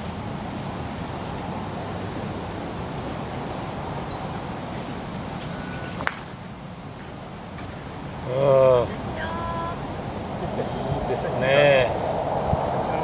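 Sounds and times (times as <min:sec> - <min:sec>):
golf club hitting ball: 0:05.9 - 0:06.4.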